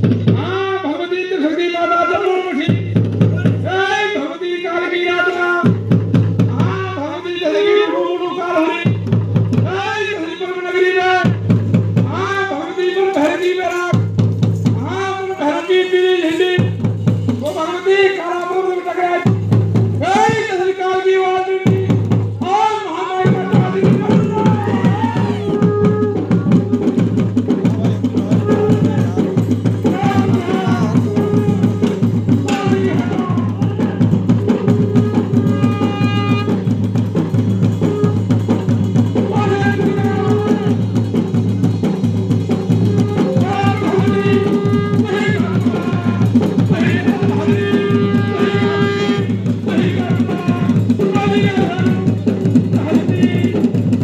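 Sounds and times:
fast drumming: 0.0s - 54.0s
person singing: 27.7s - 36.4s, 42.9s - 52.3s.

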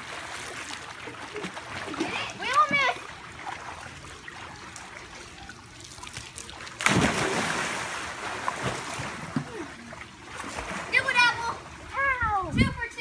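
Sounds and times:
water lapping: 0.0s - 12.6s
loud water splash: 6.8s - 9.6s.

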